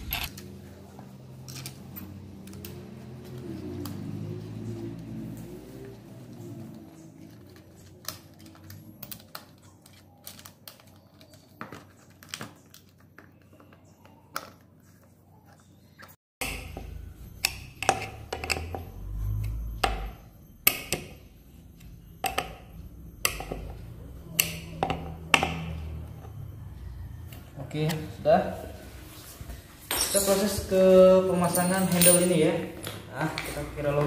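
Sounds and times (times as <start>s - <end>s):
metal and plastic parts clicking: 7.2s - 13.0s.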